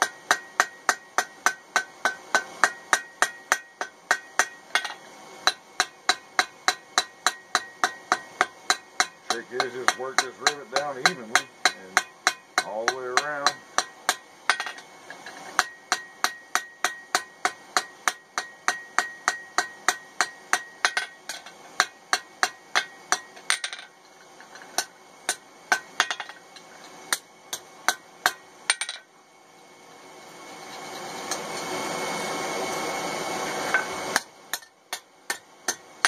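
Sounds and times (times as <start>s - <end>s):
hammer striking steel: 0.0s - 29.1s, 33.7s - 35.9s.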